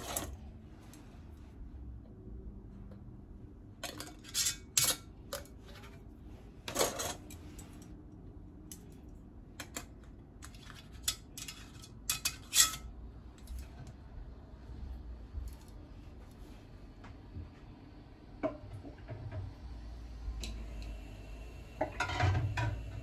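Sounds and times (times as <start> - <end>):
metal lids clinking against glass jars: 3.8 - 5.5, 10.6 - 12.9.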